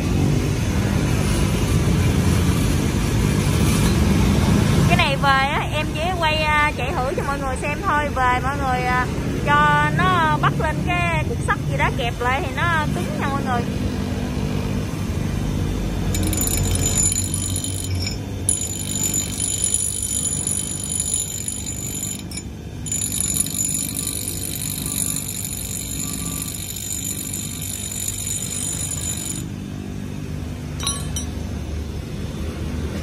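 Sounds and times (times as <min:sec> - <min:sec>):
bench grinder motor hum: 0:16.1 - 0:29.5.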